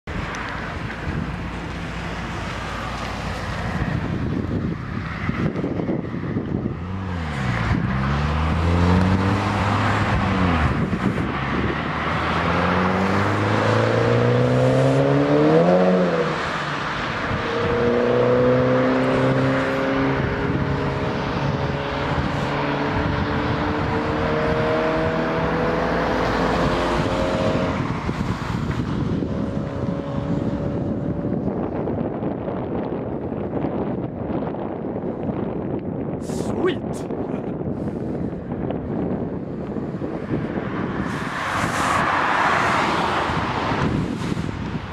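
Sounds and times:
wind noise on microphone: 0.1s - 44.9s
car engine accelerating hard: 5.5s - 33.0s.

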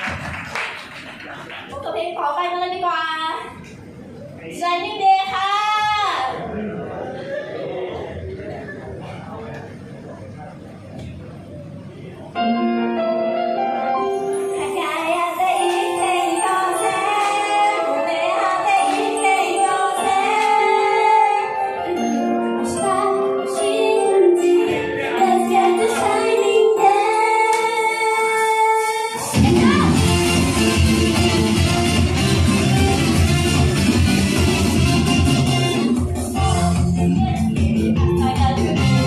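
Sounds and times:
pop song over loudspeakers: 13.9s - 39.0s
female voices singing: 14.6s - 21.9s, 22.6s - 30.0s.

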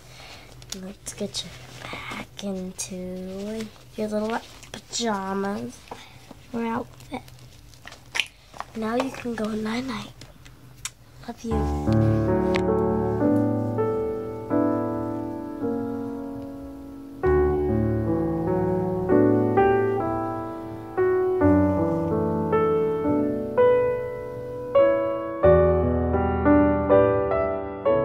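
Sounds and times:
slow piano music: 11.5s - 28.0s.

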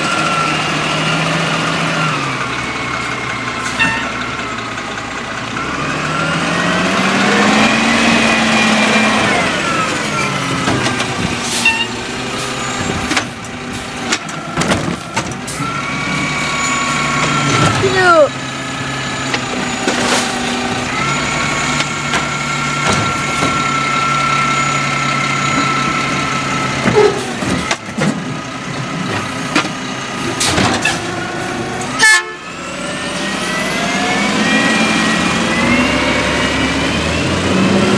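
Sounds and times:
garbage truck engine: 0.0s - 37.9s
cart clanking and knocking: 8.9s - 24.6s, 25.3s - 31.2s.

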